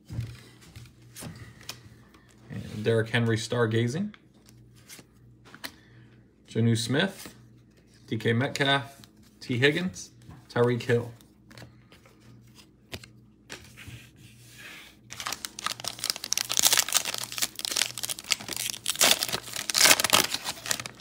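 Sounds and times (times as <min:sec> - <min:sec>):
foil wrapper tearing and crinkling: 0:15.1 - 0:21.0.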